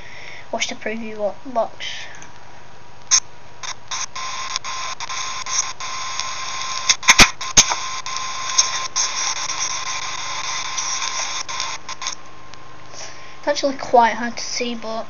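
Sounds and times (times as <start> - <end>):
recording hiss: 0.0 - 15.0
sharp clicks: 3.0 - 12.6.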